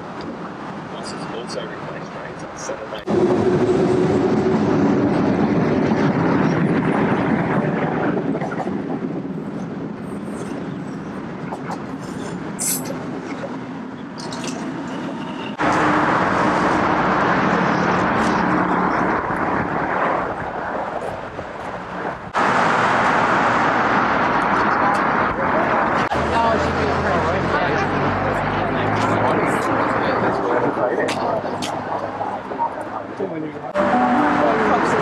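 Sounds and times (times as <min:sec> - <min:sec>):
train rolling rumble: 0:00.0 - 0:33.8.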